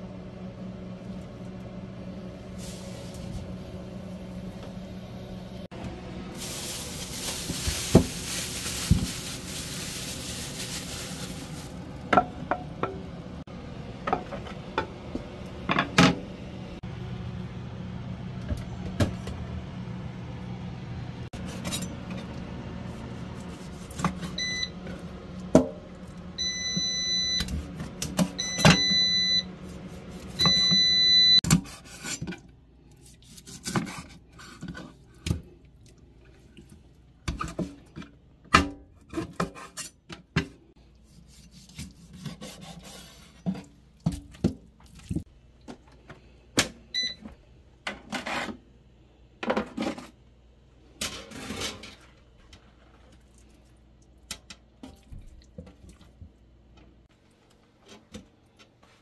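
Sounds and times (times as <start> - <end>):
electronic appliance beep: 24.3 - 24.8, 26.4 - 27.6, 28.4 - 29.6, 30.4 - 31.4, 46.9 - 47.3.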